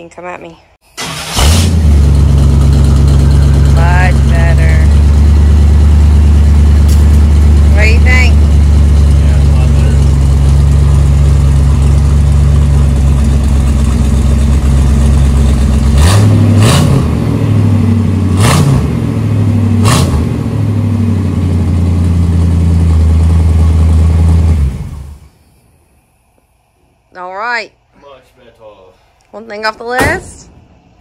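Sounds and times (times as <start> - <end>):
engine revving: 1.0 - 25.3
truck engine idling: 1.0 - 27.0.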